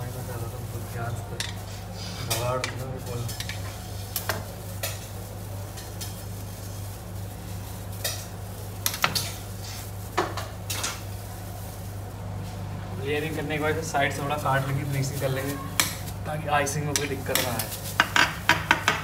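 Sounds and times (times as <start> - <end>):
steady low hum: 0.0 - 19.0
utensils clicking and tapping: 16.8 - 19.0.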